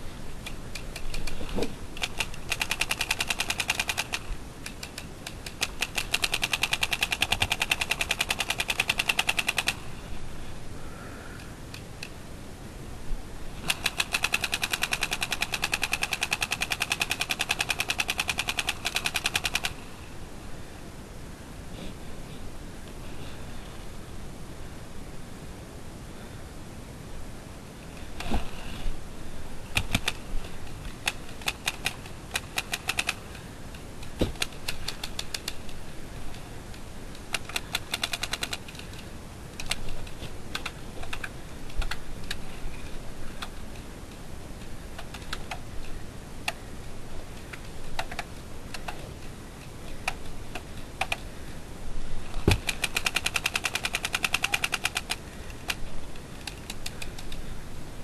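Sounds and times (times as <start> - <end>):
paintball markers firing: 2.0 - 9.8, 29.8 - 30.2, 52.4 - 55.2.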